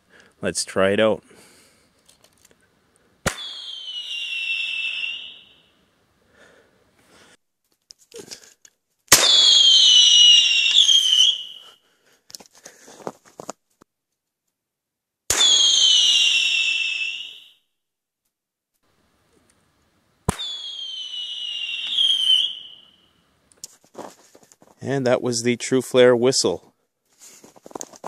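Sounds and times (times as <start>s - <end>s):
flare launcher pop: 3.2s - 3.7s, 15.3s - 15.7s, 20.3s - 20.7s
shrill falling whistle: 3.3s - 5.7s, 9.2s - 11.8s, 15.3s - 17.7s, 20.4s - 23.2s.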